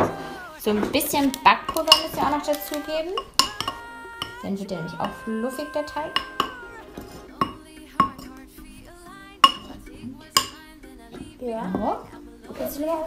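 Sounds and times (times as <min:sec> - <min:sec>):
background music: 0:00.0 - 0:13.0
metal spoon clinking ceramic mug: 0:01.2 - 0:05.3, 0:06.1 - 0:08.4, 0:09.4 - 0:10.6.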